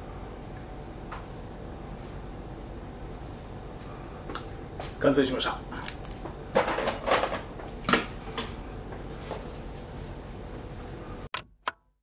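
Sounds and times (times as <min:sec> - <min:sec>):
low room hum: 0:00.0 - 0:11.3
objects knocking and clinking: 0:05.8 - 0:07.3.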